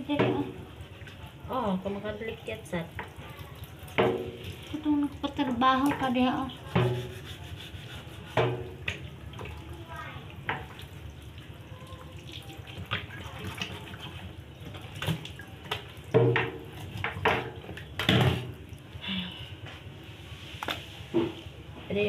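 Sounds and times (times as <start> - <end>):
tap water running into sink: 0.0 - 7.2, 8.3 - 18.6
meat knocking and splashing: 0.0 - 19.0, 20.6 - 21.6.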